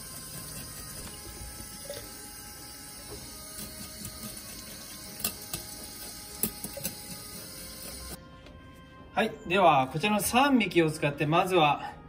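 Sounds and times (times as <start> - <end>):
running tap water: 0.0 - 8.2
knife scraping fish scales: 3.4 - 8.2.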